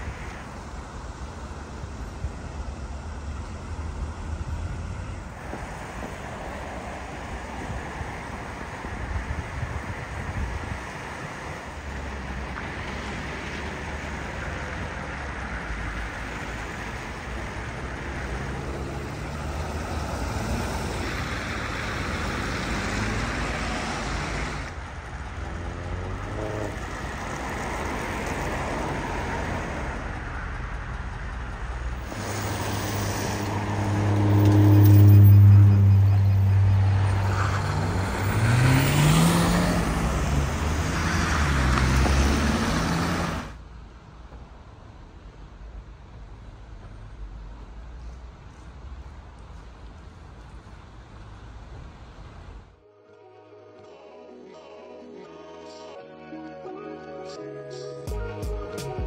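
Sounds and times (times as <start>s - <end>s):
vehicle engine hum: 0.0s - 52.8s
road traffic rushing: 0.0s - 59.0s
engine accelerating: 13.1s - 43.6s.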